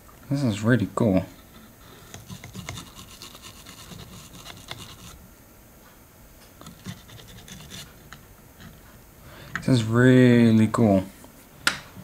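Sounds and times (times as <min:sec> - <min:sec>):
toothbrush scrubbing circuit board: 0:01.9 - 0:05.2, 0:06.6 - 0:08.0.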